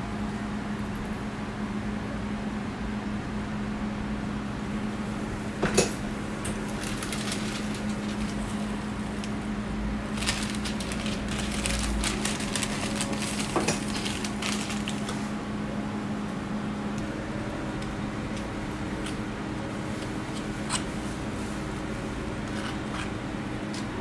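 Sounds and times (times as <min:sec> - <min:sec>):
paper and plastic crinkling: 0:06.5 - 0:09.4, 0:10.0 - 0:15.4.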